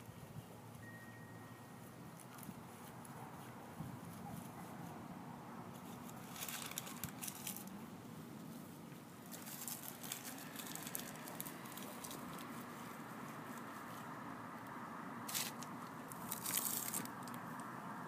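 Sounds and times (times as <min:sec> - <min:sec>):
hands crunching damp soil: 0:05.7 - 0:17.6.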